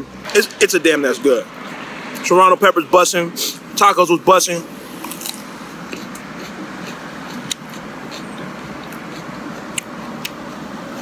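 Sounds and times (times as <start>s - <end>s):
road traffic noise: 0.0s - 11.0s
pepper crunching being chewed: 5.0s - 10.4s.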